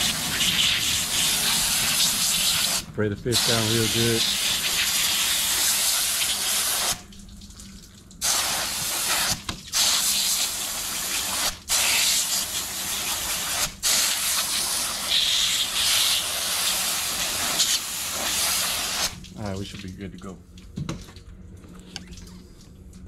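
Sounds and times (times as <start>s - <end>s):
hose nozzle spraying water: 0.0s - 7.1s, 8.2s - 19.3s.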